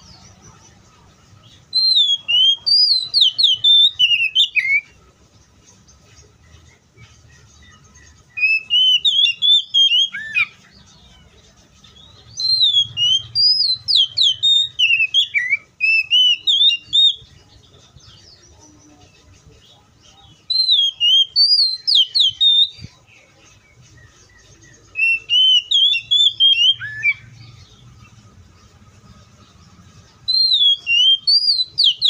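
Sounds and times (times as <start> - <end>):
bird singing whistled phrases: 1.6 - 5.0, 7.7 - 10.7, 12.1 - 17.3, 20.1 - 23.0, 24.9 - 27.7, 30.2 - 32.0.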